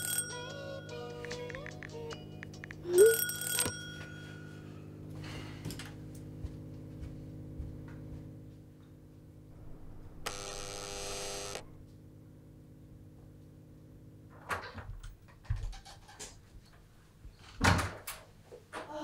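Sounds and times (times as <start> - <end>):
intercom buzzer: 10.2 - 11.8.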